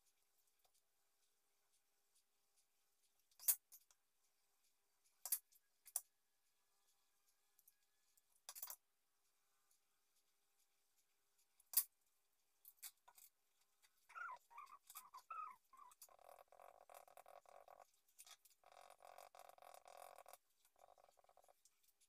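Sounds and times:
animal warbling and trilling: 14.1s - 17.8s.

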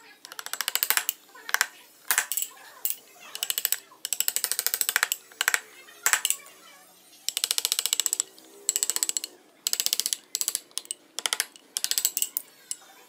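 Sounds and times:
chisel paring wood: 0.3s - 2.3s, 7.3s - 12.4s.

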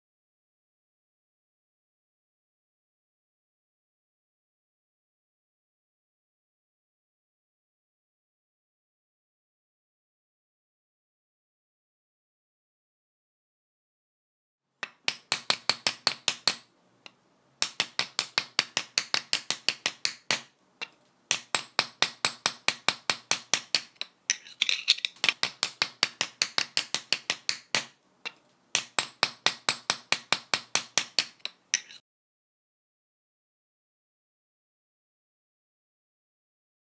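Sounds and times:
tool chipping tiles: 14.8s - 16.6s, 17.6s - 32.0s.

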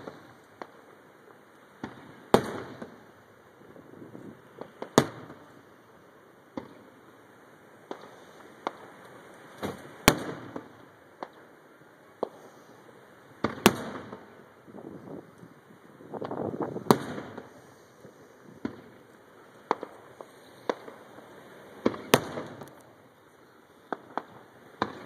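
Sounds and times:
small firework pops: 0.0s - 0.9s, 1.7s - 3.1s, 4.1s - 5.6s, 6.5s - 7.1s, 7.8s - 11.5s, 12.1s - 12.8s, 13.4s - 15.5s, 16.2s - 23.0s, 23.8s - 25.0s
firework booms: 1.8s - 3.0s, 3.7s - 5.6s, 9.6s - 11.3s, 13.4s - 15.3s, 16.1s - 19.0s, 21.8s - 22.7s, 23.9s - 25.0s.

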